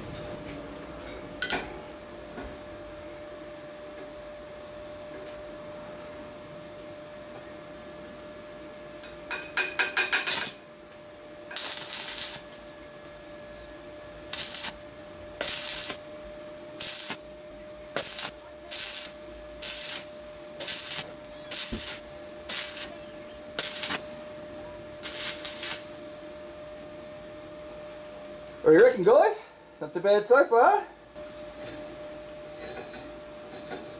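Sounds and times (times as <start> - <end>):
faint steady whine: 0.0 - 33.9
welding arc crackling: 10.0 - 12.7, 14.1 - 24.3, 25.0 - 26.0.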